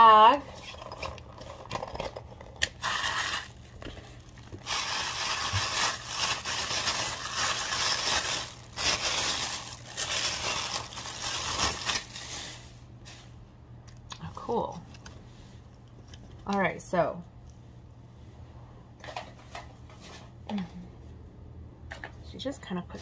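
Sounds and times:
plastic bag crinkling: 0.0s - 13.3s.

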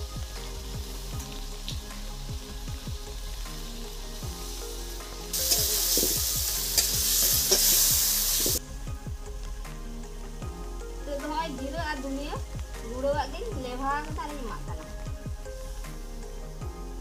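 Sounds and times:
masala sizzling in oil: 0.0s - 17.0s
soft background music: 0.0s - 17.0s
spatula scraping a wok: 5.3s - 8.6s.

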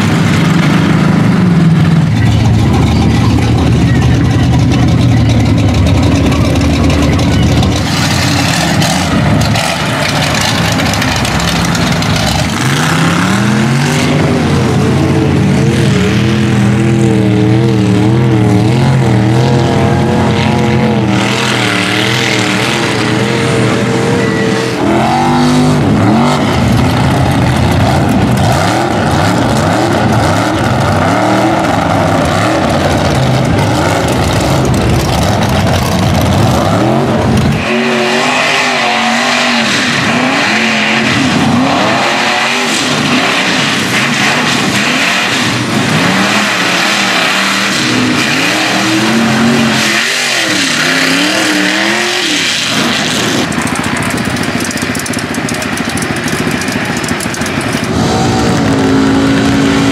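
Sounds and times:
truck engines revving hard: 0.0s - 59.9s.

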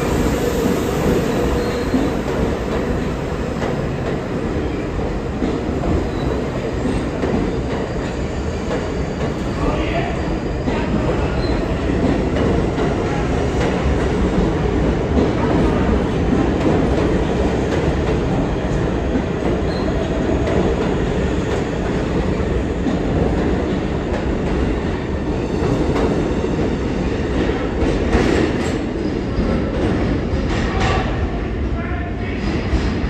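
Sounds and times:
train wheels rumbling on rails: 0.0s - 33.0s.

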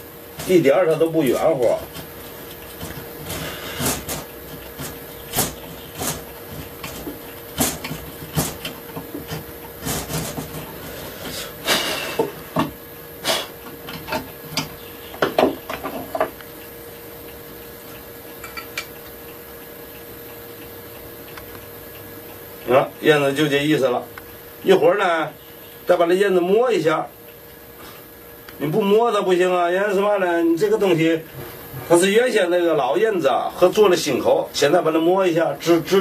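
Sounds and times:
hand tools knocking on wood: 13.9s - 16.4s.

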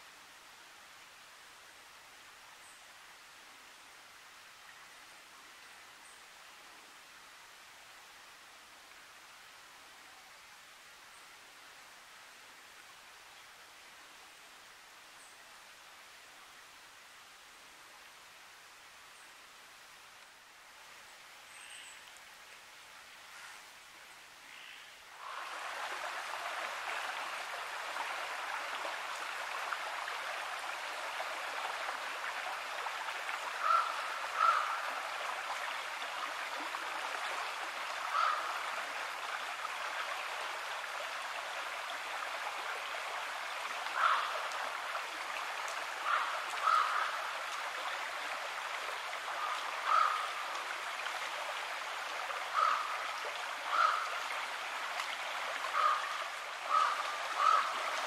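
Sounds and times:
river rushing over rocks: 25.1s - 58.0s.

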